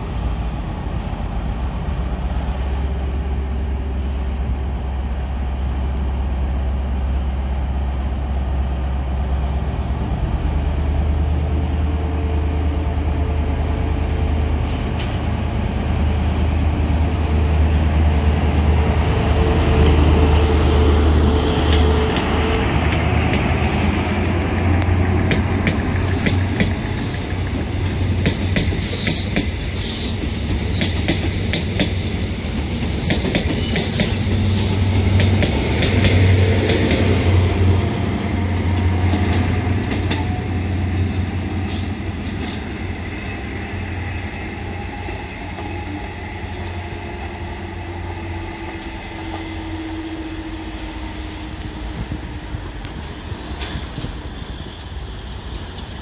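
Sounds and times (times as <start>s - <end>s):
diesel train engine drone: 0.0s - 56.0s
train wheels clicking over rail joints: 21.2s - 37.7s, 51.5s - 56.0s.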